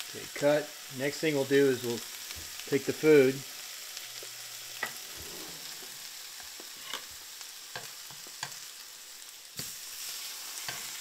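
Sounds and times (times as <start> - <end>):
eggs sizzling in a frying pan: 0.0 - 11.0.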